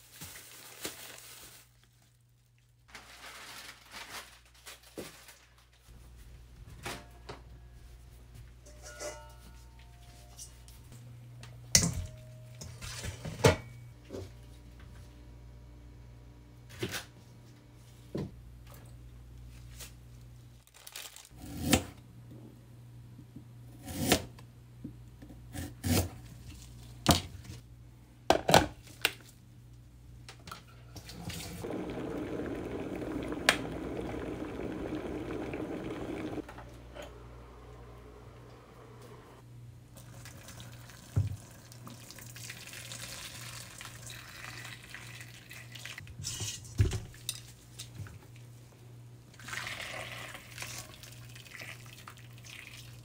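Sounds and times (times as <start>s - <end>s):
steady low hum: 30.7s - 40.0s
water rushing: 31.5s - 36.4s.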